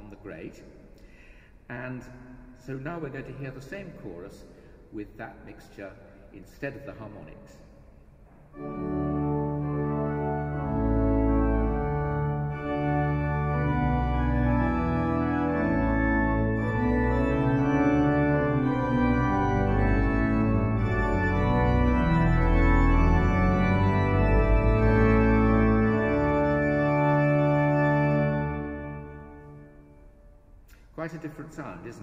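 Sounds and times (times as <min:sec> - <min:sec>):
pipe organ playing full chords: 0:08.5 - 0:30.4.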